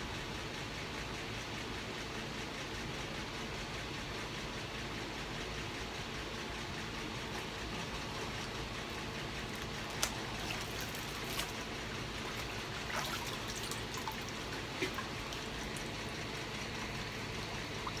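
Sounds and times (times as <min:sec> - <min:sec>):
water splashing and trickling: 0:09.4 - 0:18.0.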